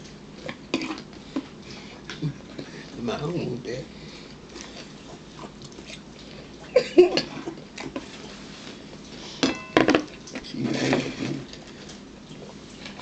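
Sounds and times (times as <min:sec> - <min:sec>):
bowl and fork knocking dishes: 0:09.4 - 0:10.1.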